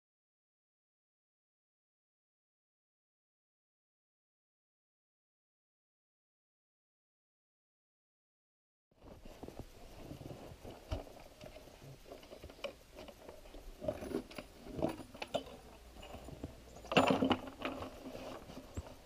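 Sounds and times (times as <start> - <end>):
scraping clatter: 9.1 - 19.0
metal chain rattling on plywood: 10.6 - 19.0.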